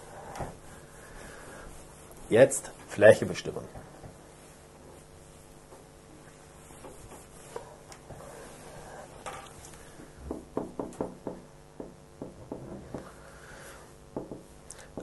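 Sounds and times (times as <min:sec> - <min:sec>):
cloth wiping whiteboard: 0:00.0 - 0:09.2.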